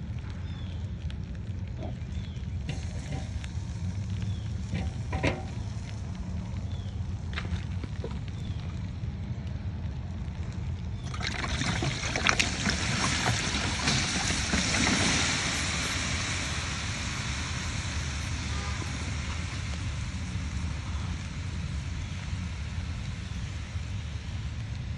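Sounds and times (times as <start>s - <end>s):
low rumble: 0.0s - 24.9s
meat sizzling on a grill: 1.8s - 7.3s, 13.0s - 24.8s.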